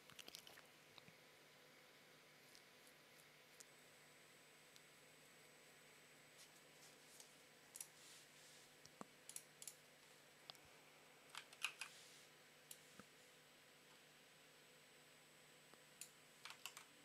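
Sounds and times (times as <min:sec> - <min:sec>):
faint room hiss: 0:00.0 - 0:17.0
computer keys clicking: 0:11.3 - 0:11.9, 0:16.0 - 0:16.9.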